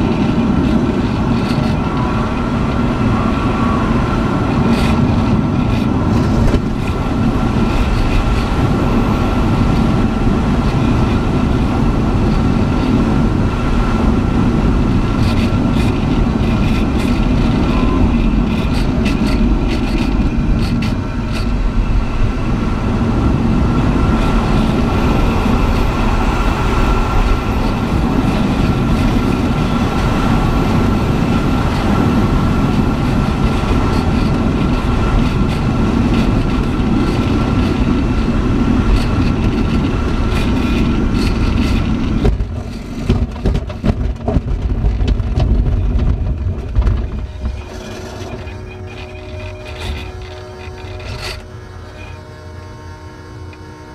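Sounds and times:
air rushing past canopy: 0.0 - 43.4
knocks and rattles: 38.9 - 51.4.

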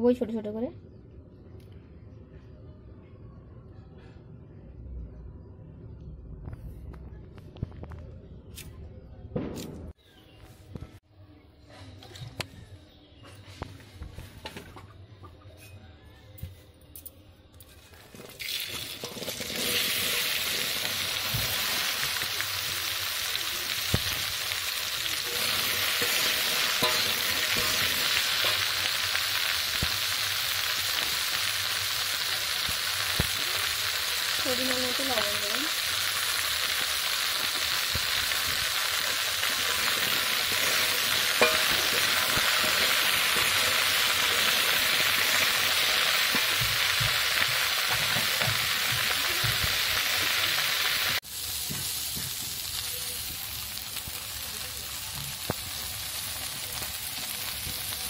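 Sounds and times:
okra sizzling in hot oil: 18.1 - 58.0
steel spatula tapping: 25.4 - 28.7, 41.2 - 42.8.

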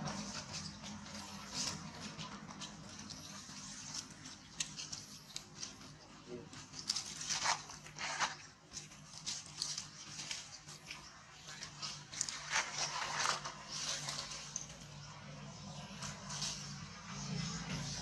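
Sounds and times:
dry leaves rustling and crackling: 0.0 - 18.0.

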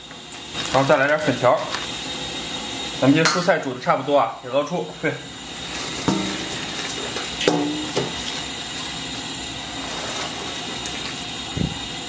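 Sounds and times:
broth boiling: 0.0 - 12.0
metal skimmer knocking and scraping: 6.0 - 8.3.

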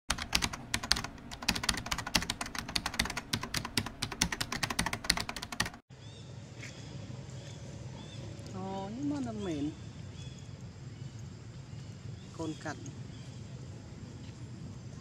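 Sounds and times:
keyboard typing clicks: 0.1 - 5.8
faint outdoor ambience: 0.1 - 15.0.

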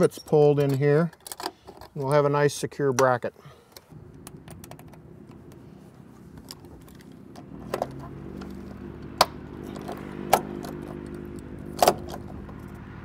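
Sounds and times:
steady low hum: 3.4 - 13.0.

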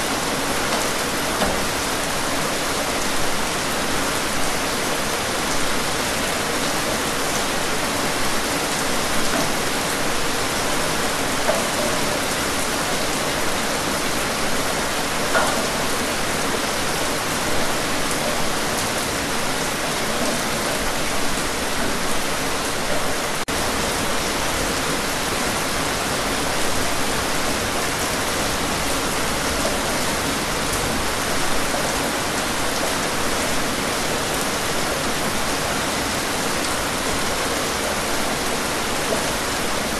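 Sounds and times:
steady rainfall: 0.0 - 39.9
raindrop taps: 0.7 - 1.8, 9.2 - 9.6.

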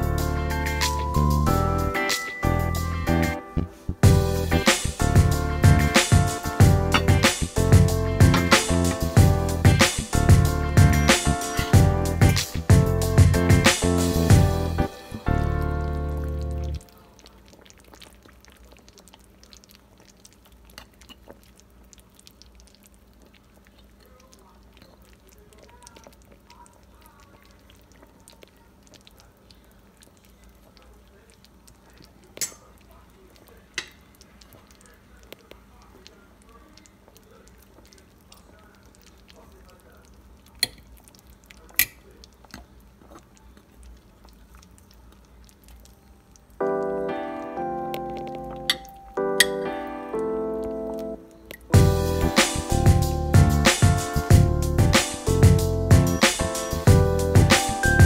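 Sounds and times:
piano music: 0.0 - 16.8, 46.6 - 58.0
low steady hum: 0.0 - 56.2
metal fork clinking on pot: 32.4 - 32.7.

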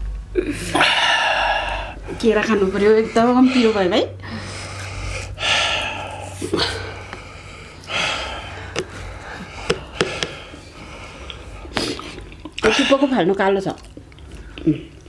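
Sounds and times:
person gasping and breathing hard: 0.4 - 12.0.

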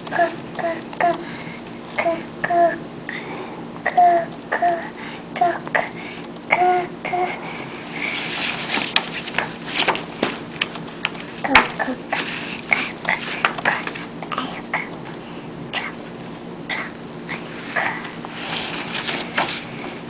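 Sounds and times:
paper page rustling: 8.0 - 14.1, 18.3 - 20.0.

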